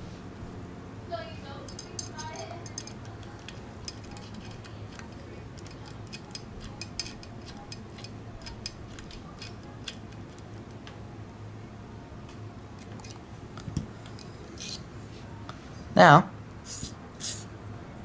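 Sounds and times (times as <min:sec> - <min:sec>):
low steady hum: 0:00.0 - 0:18.0
screwdriver clicking on set screw: 0:01.7 - 0:10.4.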